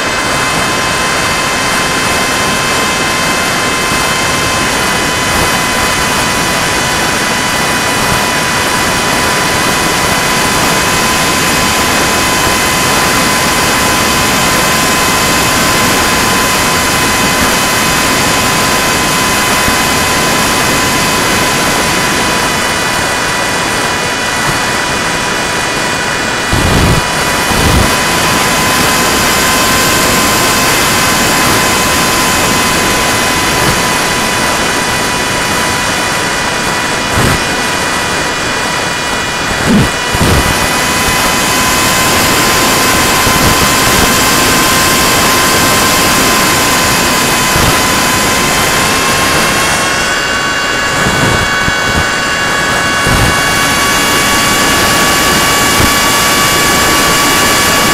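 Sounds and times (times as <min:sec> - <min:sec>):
electric motor whining: 0:00.0 - 0:57.9
loud wind rush: 0:00.0 - 0:57.9
low wind buffets: 0:00.0 - 0:57.9.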